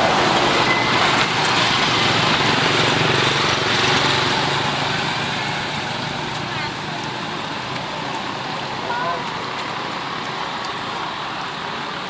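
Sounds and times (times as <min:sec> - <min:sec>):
motor vehicle running close by: 0:00.0 - 0:12.0
steady traffic rushing: 0:00.0 - 0:12.0.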